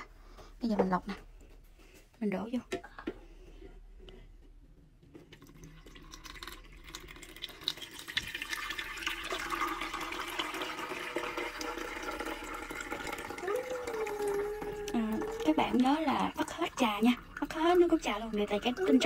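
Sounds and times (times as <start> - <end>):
tea pouring into filter bag: 5.2 - 19.0.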